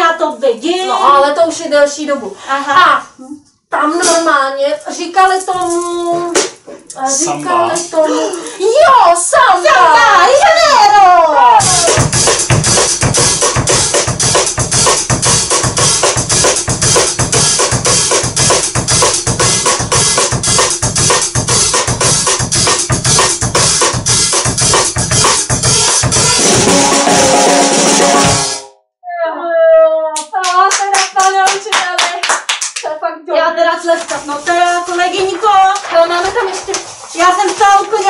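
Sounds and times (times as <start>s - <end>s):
drum kit samba groove: 11.6s - 28.7s
hand clapping: 30.2s - 32.9s.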